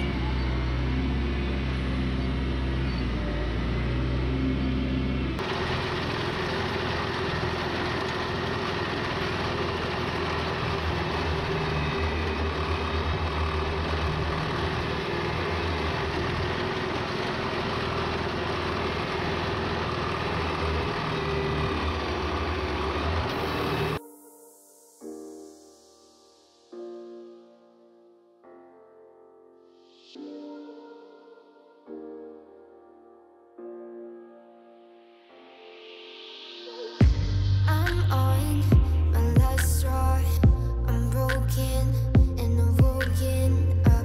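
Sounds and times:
tractor engine running: 0.0s - 24.0s
wagon pickup and rotor working: 0.0s - 24.0s.

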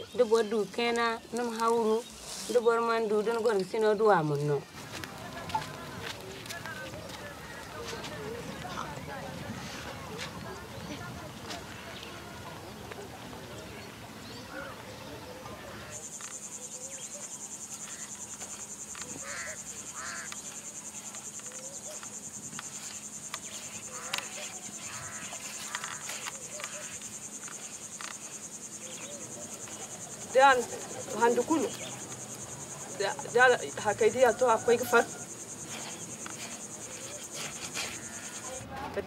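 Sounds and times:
insects chirring: 0.0s - 39.0s
woman speaking: 30.3s - 32.0s, 32.9s - 35.2s.

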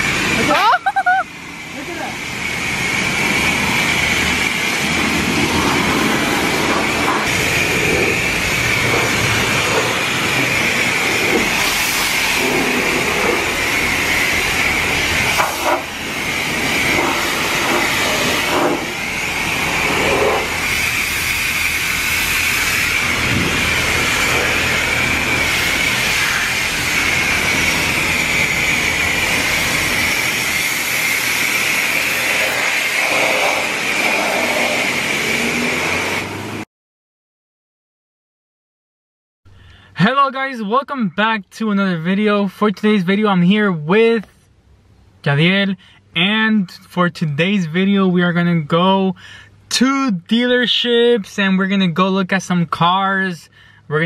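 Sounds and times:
pressure washer spraying water: 0.0s - 36.6s.

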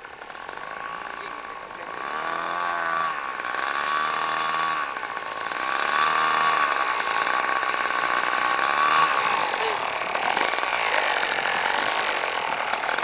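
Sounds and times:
model airplane engine buzzing: 0.0s - 13.0s.

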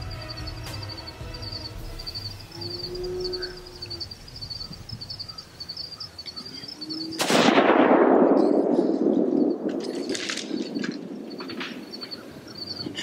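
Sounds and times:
small birds chirping: 0.0s - 7.2s, 8.4s - 13.0s
gunshot: 7.2s - 11.8s.

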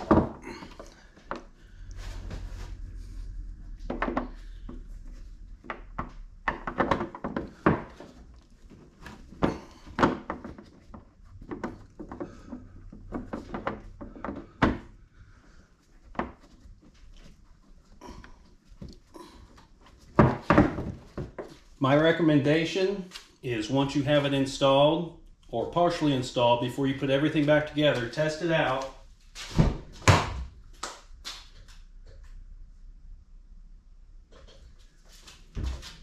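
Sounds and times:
low rumble: 1.6s - 5.7s
plastic knocks and clicks: 5.6s - 8.5s.

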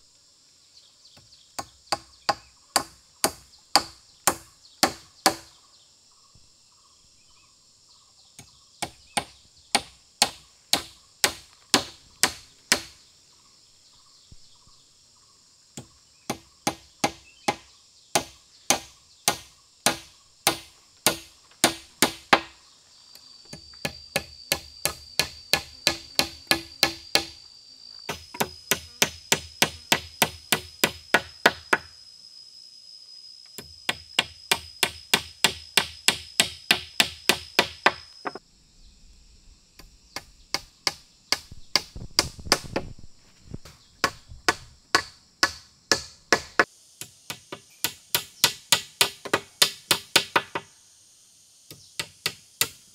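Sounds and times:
high insect whine: 0.0s - 52.9s
hatchet striking wooden poles: 1.6s - 5.5s, 8.8s - 13.0s, 15.8s - 22.6s, 23.5s - 27.4s, 28.1s - 31.9s, 33.6s - 38.4s, 40.2s - 42.9s, 43.6s - 50.7s, 51.7s - 52.9s.

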